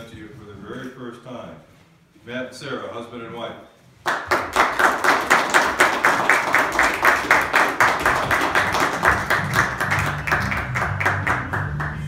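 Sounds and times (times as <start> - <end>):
people clapping: 4.0 - 12.0.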